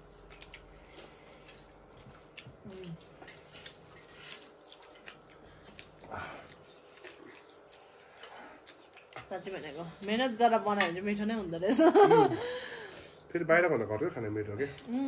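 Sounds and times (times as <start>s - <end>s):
chewing and mouth smacks: 0.0s - 9.4s.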